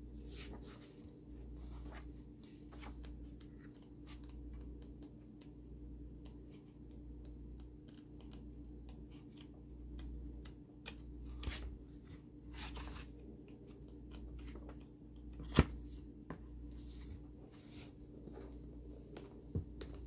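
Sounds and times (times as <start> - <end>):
book pages turning: 0.2 - 5.5, 7.6 - 16.0.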